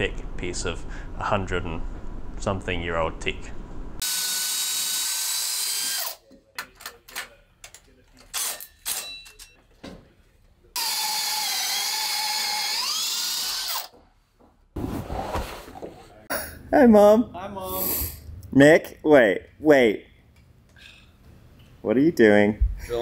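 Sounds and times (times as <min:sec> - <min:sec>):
drill hole saw cutting wood: 0:04.0 - 0:06.2, 0:10.8 - 0:13.9.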